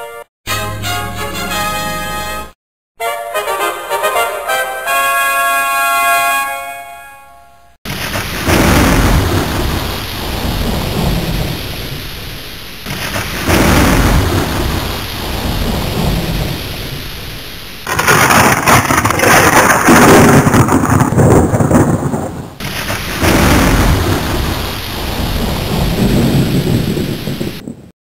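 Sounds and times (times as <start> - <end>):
loud thunderclap: 7.9 - 27.9
rolling thunder: 7.9 - 27.9
steady rain: 7.9 - 27.9.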